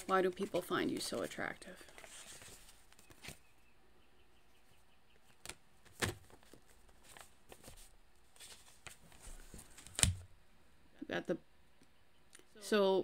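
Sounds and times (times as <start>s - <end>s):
cards snapping and tapping: 9.8s - 10.2s.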